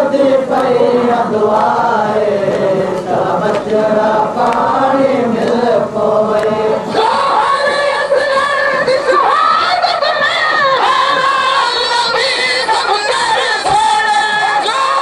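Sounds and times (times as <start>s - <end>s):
men chanting a lament: 0.0s - 15.0s
sharp slaps keeping beat: 1.5s - 4.7s, 6.3s - 6.6s.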